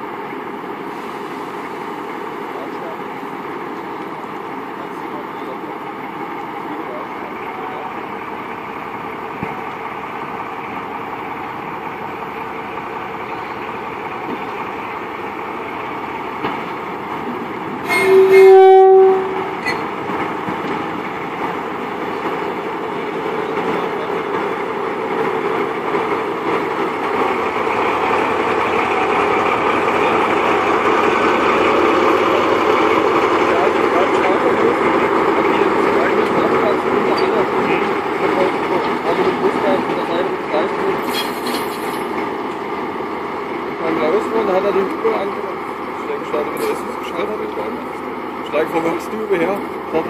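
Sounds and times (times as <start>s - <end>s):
diesel locomotive engine: 0.0s - 50.0s
locomotive horn blast: 17.8s - 19.8s.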